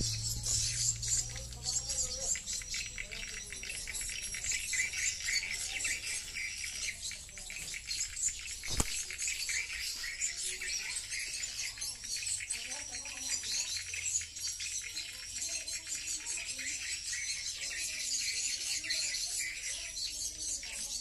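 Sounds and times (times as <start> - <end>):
high bird twittering from speakers: 0.0 - 21.0
sharp click: 8.6 - 9.1.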